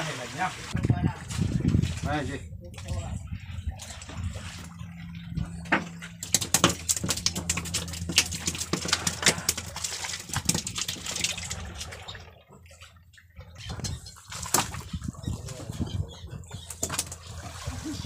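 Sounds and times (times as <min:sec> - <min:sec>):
low steady hum: 0:01.0 - 0:18.0
fish slapping on wooden boat: 0:05.5 - 0:12.4, 0:13.5 - 0:18.0.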